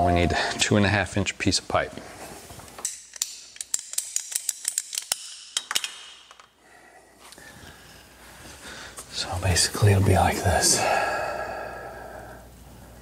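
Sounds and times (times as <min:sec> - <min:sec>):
ratcheting pipe cutter clicking: 0:02.8 - 0:06.5.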